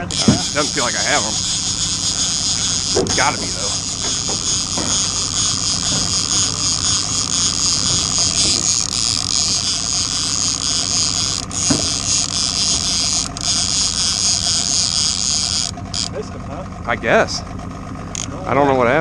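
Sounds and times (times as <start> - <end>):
outboard motor running: 0.0 - 19.0.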